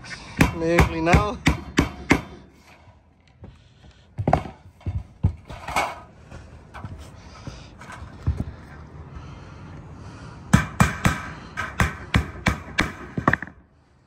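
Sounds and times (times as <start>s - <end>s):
hammer striking nails into metal: 0.4s - 2.4s, 10.5s - 13.6s.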